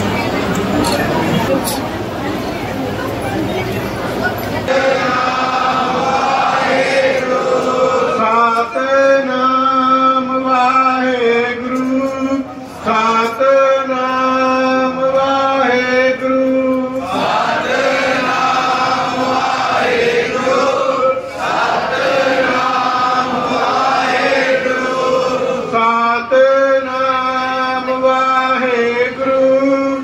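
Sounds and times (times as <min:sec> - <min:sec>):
men chanting: 0:04.7 - 0:30.0.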